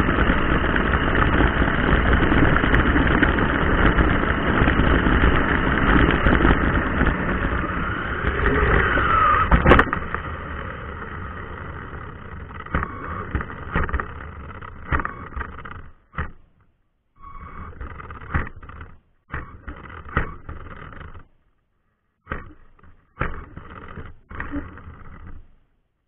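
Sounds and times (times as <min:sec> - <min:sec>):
falling whine: 0:00.0 - 0:16.0, 0:17.2 - 0:20.9
rc truck motor and tyres rushing: 0:00.0 - 0:21.4, 0:22.2 - 0:25.8
sharp knocks: 0:12.6 - 0:16.6.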